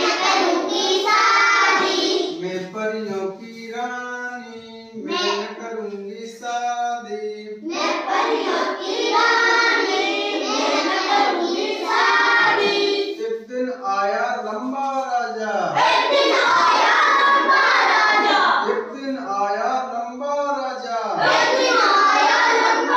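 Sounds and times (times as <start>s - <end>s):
children singing: 0.0s - 2.5s, 5.0s - 5.7s, 7.6s - 13.2s, 15.8s - 18.8s, 21.2s - 22.9s.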